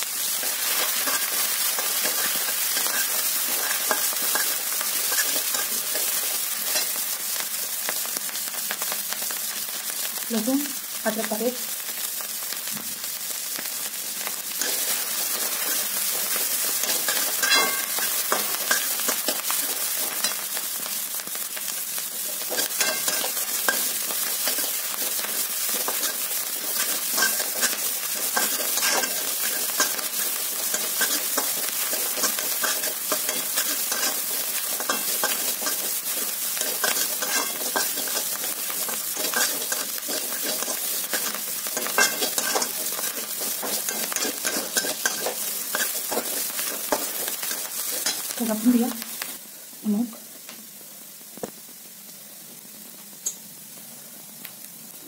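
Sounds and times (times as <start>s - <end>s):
vegetables sizzling in hot oil: 0.0s - 55.0s
metal spatula scraping pan: 16.8s - 19.4s, 22.5s - 24.8s, 25.8s - 48.2s.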